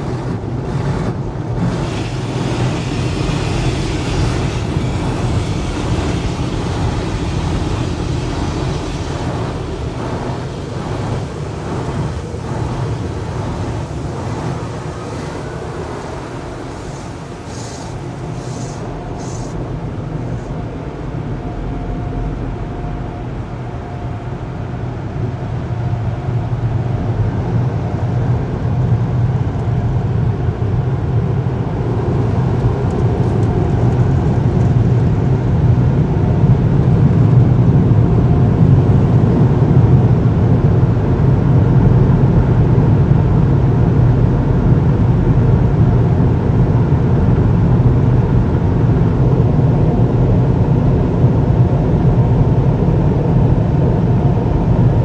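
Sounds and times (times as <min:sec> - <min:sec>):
air-dryer blowers roaring: 0:00.0 - 0:24.0.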